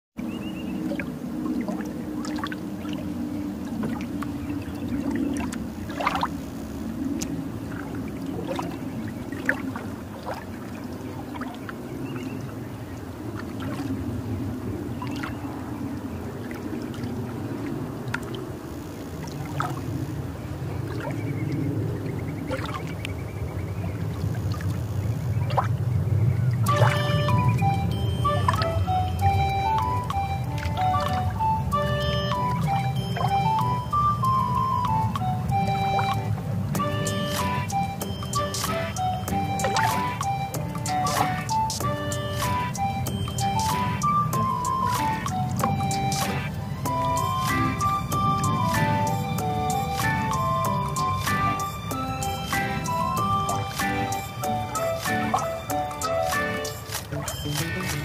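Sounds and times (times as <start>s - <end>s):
low steady engine drone: 0.2s - 58.0s
water splashing against hull: 0.3s - 58.0s
short splashes: 0.7s - 6.6s, 7.2s - 11.8s, 13.3s - 14.0s, 15.0s - 15.5s, 22.4s - 23.1s, 24.2s - 25.8s, 26.6s - 33.8s, 35.9s - 49.1s.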